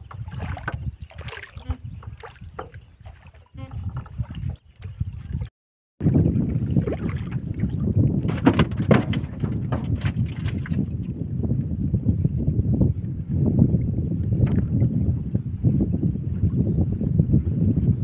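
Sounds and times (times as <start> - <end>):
fish splashing and thrashing: 0.0 - 11.2
water lapping against wooden boat: 0.0 - 18.0
wind rumbling on microphone: 0.0 - 18.0.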